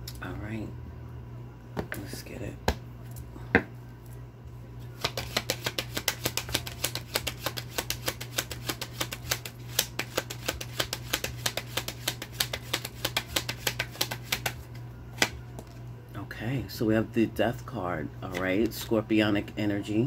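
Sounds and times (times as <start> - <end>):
steady low hum: 0.0 - 20.0
cards being shuffled: 4.9 - 15.8.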